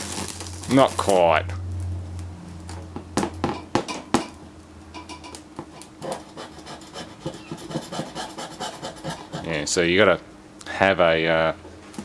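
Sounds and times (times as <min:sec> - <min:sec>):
panel crackling and popping: 0:00.0 - 0:06.2
low electrical hum: 0:00.0 - 0:12.0.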